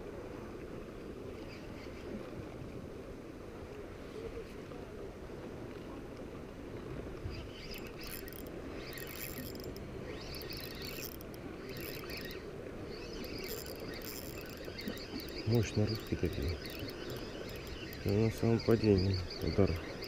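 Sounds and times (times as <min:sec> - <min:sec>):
fishing reel whirring: 0:07.3 - 0:20.0.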